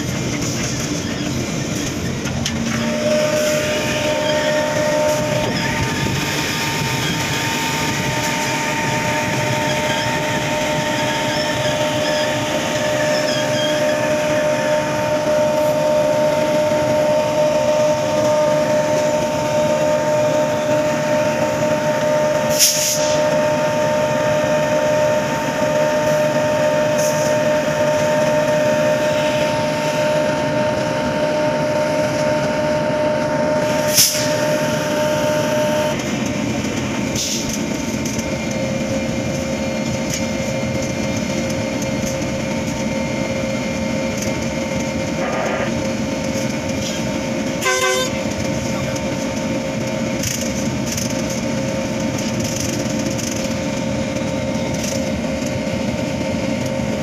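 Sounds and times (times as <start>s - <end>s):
train running noise: 0.0s - 57.0s
two-note whine: 2.5s - 36.0s.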